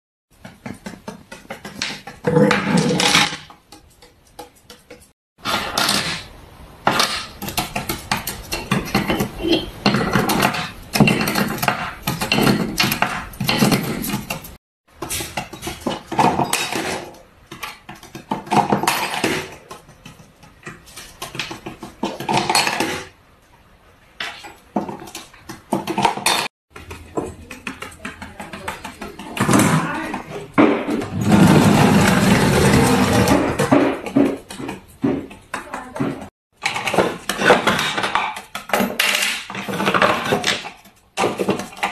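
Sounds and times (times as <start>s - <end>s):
plastic toys clattering on table: 0.6s - 6.3s, 24.2s - 41.9s.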